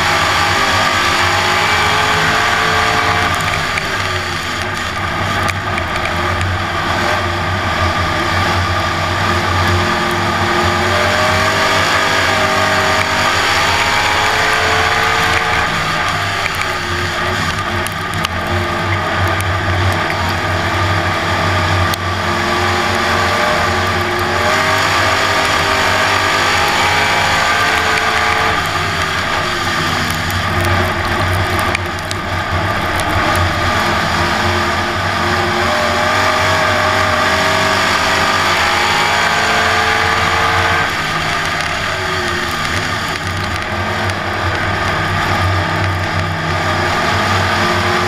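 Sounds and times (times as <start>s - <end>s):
race car engine at speed: 0.0s - 48.0s.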